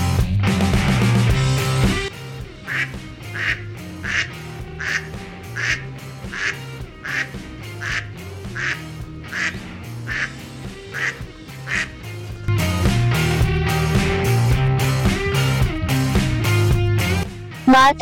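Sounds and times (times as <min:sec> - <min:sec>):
soft background music: 0:02.1 - 0:12.5
duck quacking: 0:02.6 - 0:12.2.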